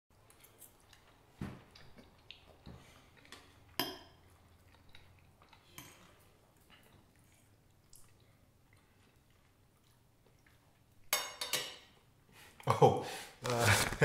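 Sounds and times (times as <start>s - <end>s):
faint chewing: 0.1s - 11.1s
forks clinking on plates: 11.1s - 11.9s.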